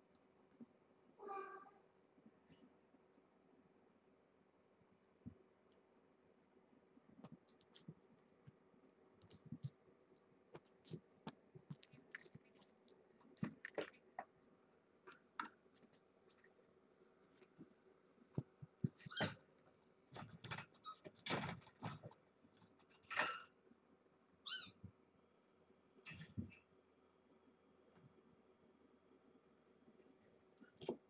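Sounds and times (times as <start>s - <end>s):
faint steady hum: 0.0s - 31.0s
kittens tapping and scrabbling: 7.2s - 14.4s, 17.3s - 19.5s, 20.1s - 23.4s.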